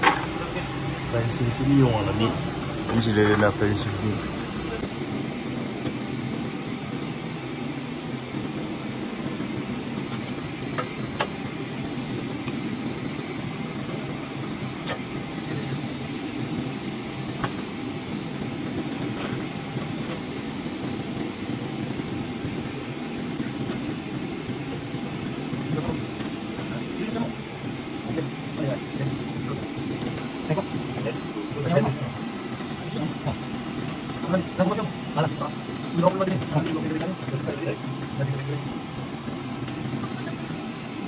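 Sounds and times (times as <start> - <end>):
faint high whine: 0.0 - 41.0
machine drone: 0.0 - 41.0.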